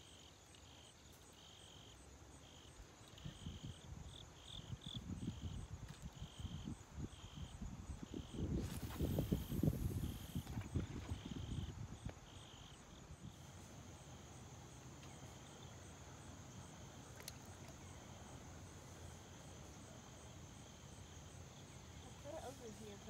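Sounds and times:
insects trilling: 0.0s - 23.0s.

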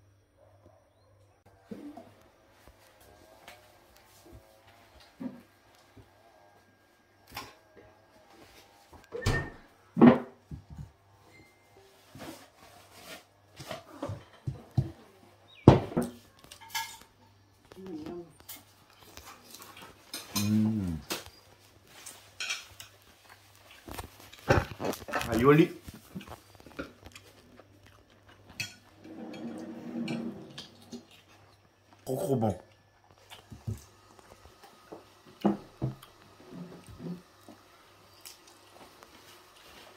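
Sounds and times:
plates and cutlery clattering: 15.7s - 17.2s, 19.6s - 20.8s, 22.0s - 23.1s, 28.5s - 31.2s.

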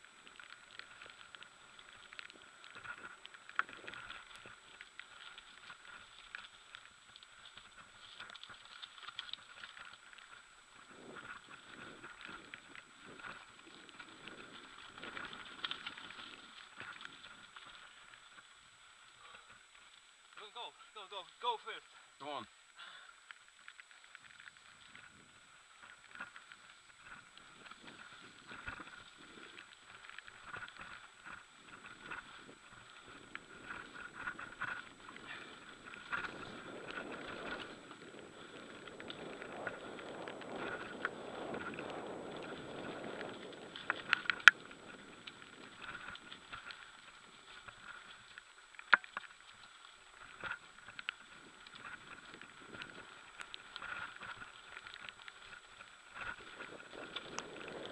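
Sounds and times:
bike tyres crunching on dirt: 0.0s - 57.9s.

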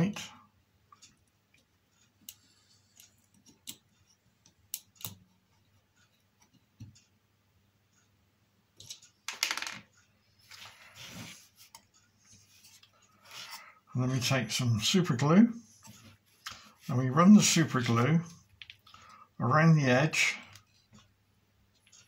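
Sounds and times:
scraping rustles of handling: 10.4s - 13.6s.

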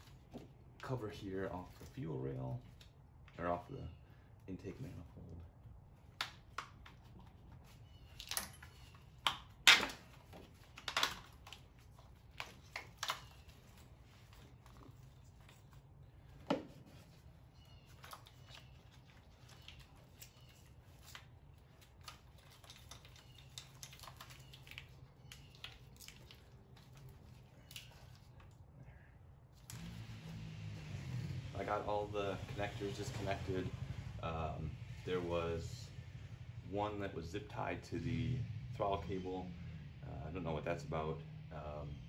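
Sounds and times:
plastic parts clicking and snapping: 8.1s - 13.8s.

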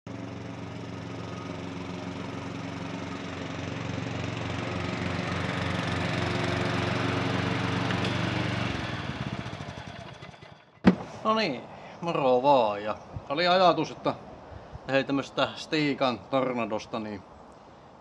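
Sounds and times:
lawn tractor engine running: 0.1s - 11.2s.

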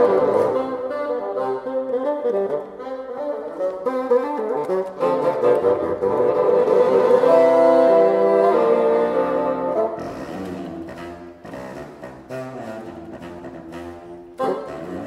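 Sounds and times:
bassoon ensemble playing jazz: 0.0s - 15.0s.

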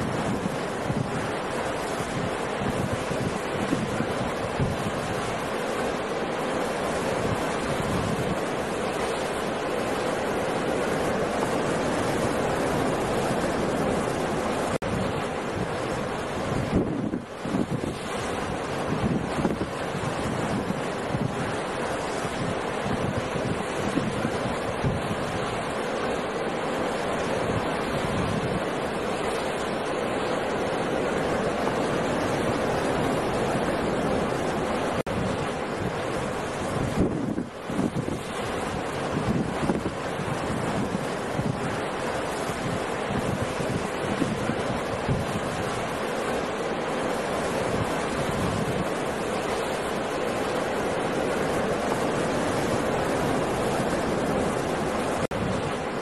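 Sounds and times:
ocean surf breaking: 0.0s - 56.0s
strong wind: 0.0s - 56.0s.

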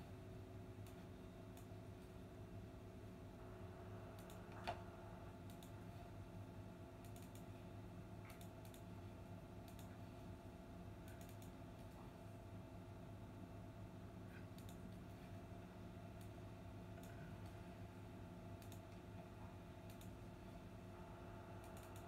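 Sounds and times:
low electrical hum: 0.0s - 22.0s
faint clicks: 4.2s - 4.8s, 5.4s - 5.8s, 7.0s - 7.5s, 8.2s - 8.9s, 9.6s - 10.0s, 11.0s - 12.0s, 14.3s - 15.0s, 16.2s - 17.6s, 18.5s - 19.1s, 19.8s - 20.2s, 21.6s - 22.0s.

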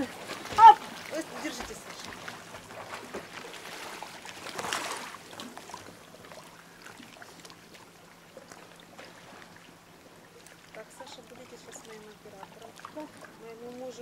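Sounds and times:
water splash: 0.0s - 7.8s
sea water lapping: 0.0s - 14.0s.

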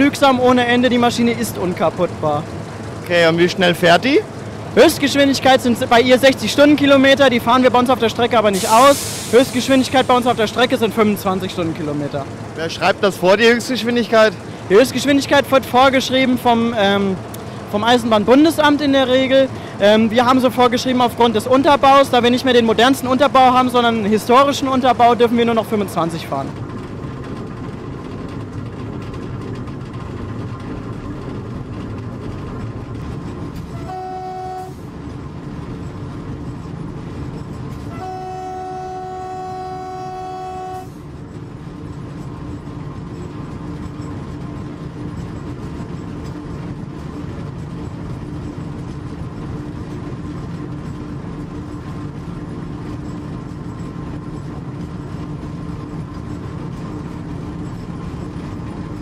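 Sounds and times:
diesel locomotive running: 0.0s - 59.0s
locomotive horn blasts: 33.6s - 34.9s, 37.8s - 41.0s.

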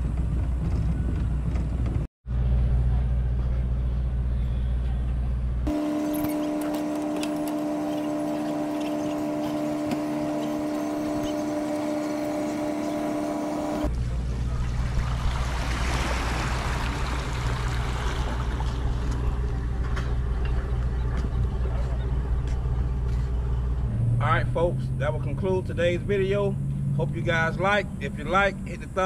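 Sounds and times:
low rumble: 0.0s - 5.7s, 13.8s - 28.8s
mechanical hum: 0.0s - 25.0s
water splashing: 5.7s - 19.4s.

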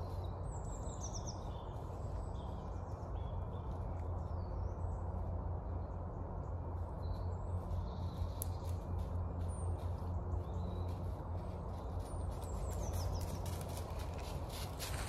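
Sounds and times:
faint footsteps: 7.6s - 15.0s.

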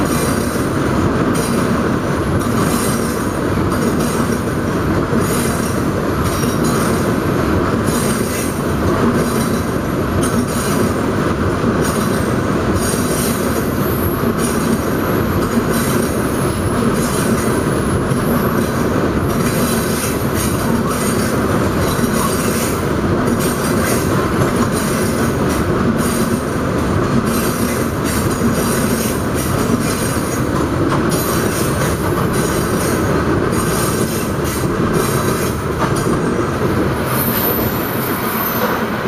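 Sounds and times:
train wheels rumbling on rail: 0.0s - 39.0s
wheels clicking over rail joints: 16.9s - 36.3s.

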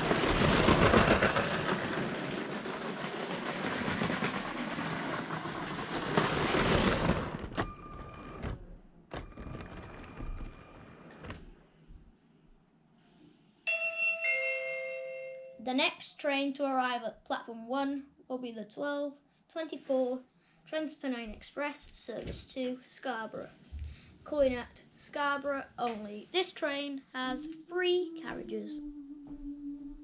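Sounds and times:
toy train rattling on plastic track: 0.0s - 7.5s
toy train whirring: 0.0s - 8.1s.

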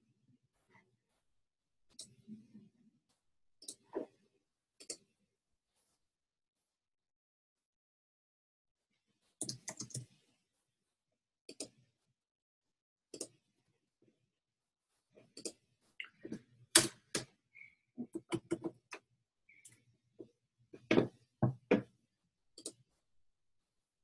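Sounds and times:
computer keyboard typing: 9.4s - 10.0s.

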